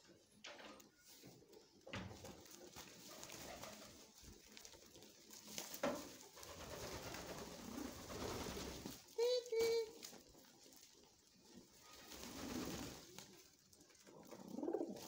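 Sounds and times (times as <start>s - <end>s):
pigeons cooing: 13.7s - 15.0s.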